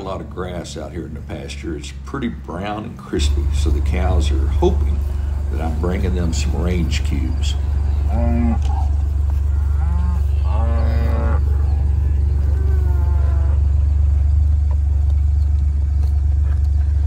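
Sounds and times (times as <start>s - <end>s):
vehicle engine idling: 0.0s - 17.0s
cows mooing: 3.2s - 14.2s.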